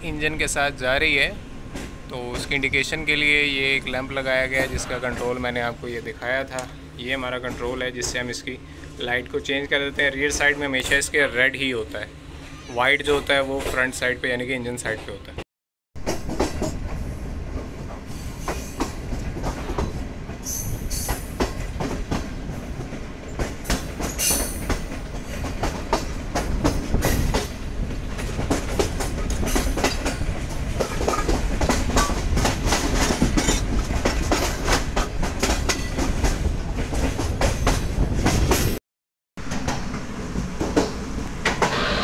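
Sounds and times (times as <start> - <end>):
train rumble: 0.0 - 15.4, 16.0 - 38.8, 39.4 - 42.0
train wheels clattering over joints: 7.3 - 8.5, 17.8 - 38.8.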